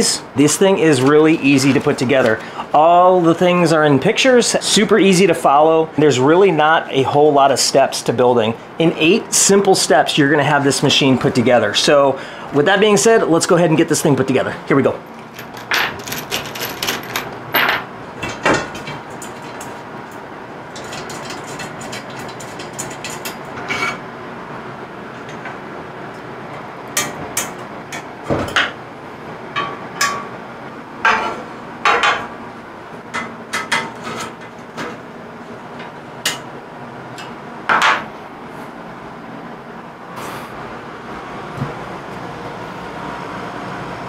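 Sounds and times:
metal rails and bolts clinking: 0:15.2 - 0:19.7.

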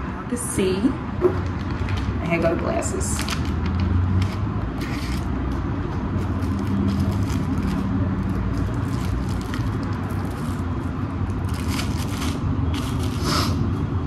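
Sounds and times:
plastic wrapping crinkling: 0:06.2 - 0:13.2.

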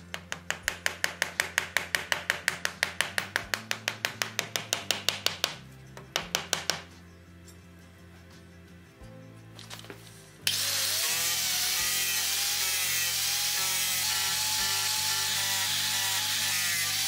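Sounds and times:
mallet tapping wooden block: 0:00.0 - 0:06.9.

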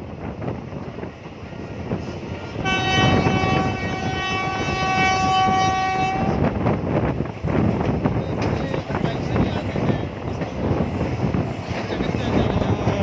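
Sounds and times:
train rumble and rail clatter: 0:00.0 - 0:13.0
train horn blast: 0:02.5 - 0:06.5.

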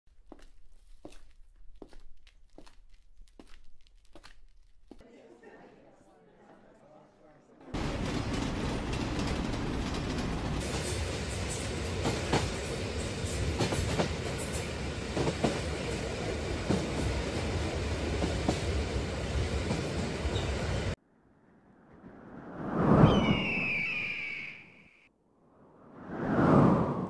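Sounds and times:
wheels clacking on rail joints: 0:07.8 - 0:15.6
freight train rumbling: 0:07.8 - 0:21.0.

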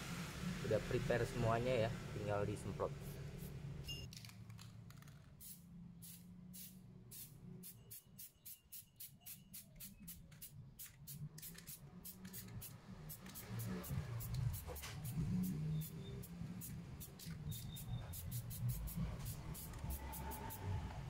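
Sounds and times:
spray paint can hissing: 0:05.4 - 0:20.8.

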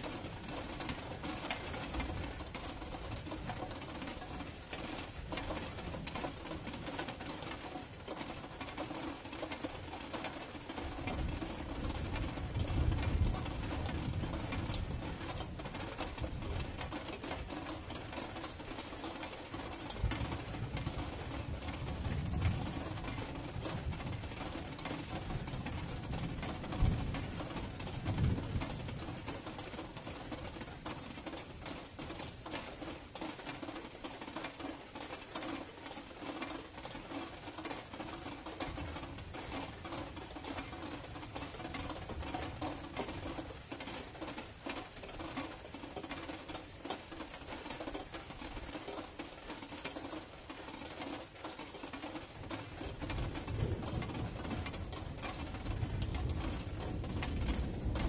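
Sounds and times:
rain pattering: 0:00.0 - 0:58.0
thunder rumbles: 0:53.1 - 0:58.0.

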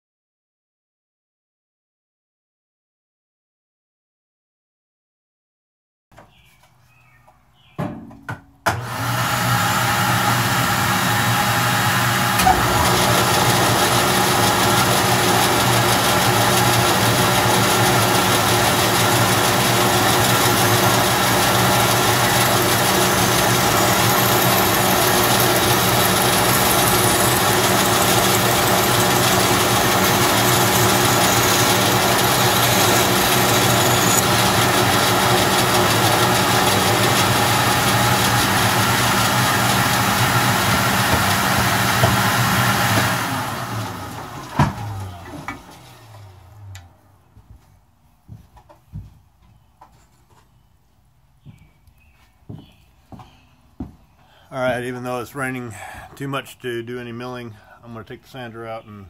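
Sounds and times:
wood fed through saw blade: 0:08.7 - 0:46.7
bandsaw motor humming: 0:08.7 - 0:46.9.

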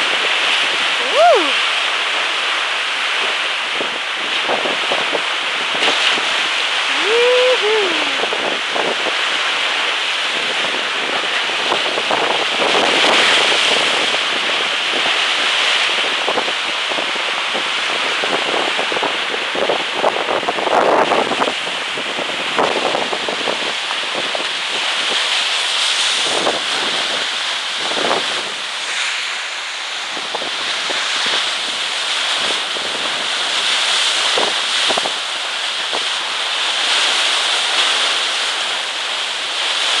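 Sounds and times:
wind buffeting microphone: 0:00.0 - 0:25.4, 0:26.0 - 0:28.7
water rushing past hull: 0:00.0 - 0:40.0.

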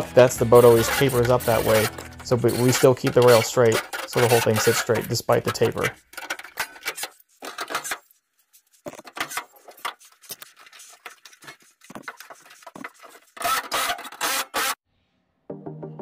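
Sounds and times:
metal scraping on metal: 0:00.0 - 0:08.2.

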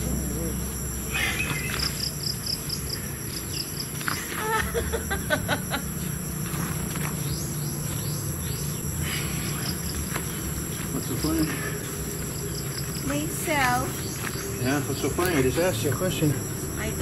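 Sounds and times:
insects droning: 0:00.0 - 0:17.0
short bird calls: 0:01.1 - 0:02.1.

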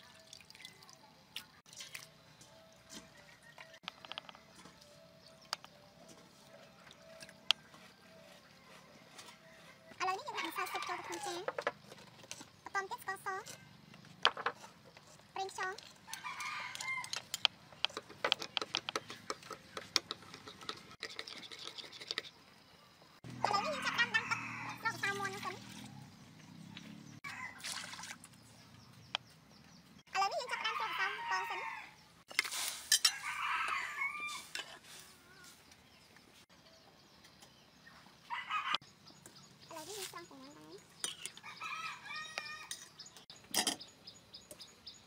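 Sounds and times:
rooster crowing: 0:23.4 - 0:25.0, 0:33.0 - 0:34.5.

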